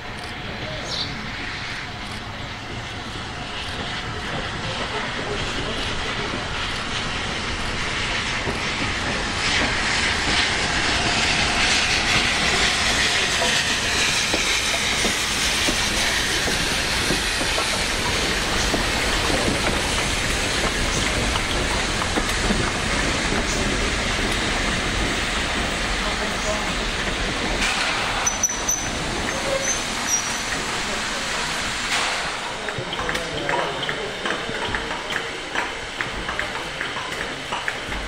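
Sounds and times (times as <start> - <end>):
steam hissing: 0.0 - 38.0
train wheels clacking over rail joints: 1.7 - 38.0.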